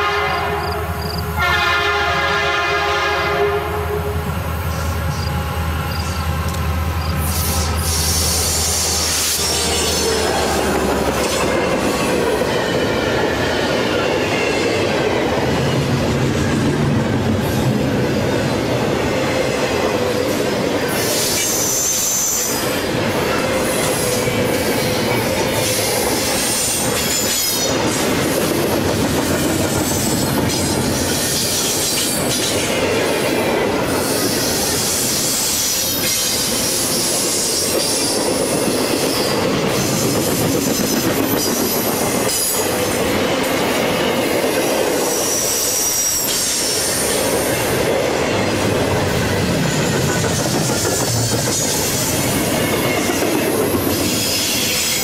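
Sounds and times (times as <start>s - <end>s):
diesel locomotive horn: 0.0s - 6.6s
squealing train wheels: 0.0s - 55.0s
train wheels clattering on rails: 4.7s - 55.0s.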